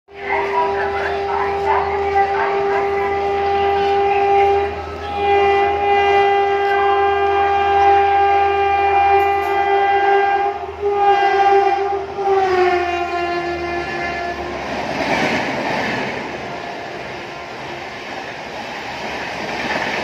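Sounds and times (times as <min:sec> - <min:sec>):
locomotive horn blast: 0:00.1 - 0:15.1.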